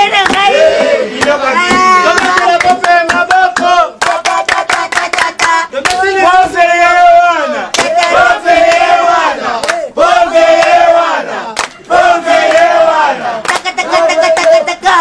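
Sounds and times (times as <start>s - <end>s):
people shouting and yelling: 0.0s - 4.0s.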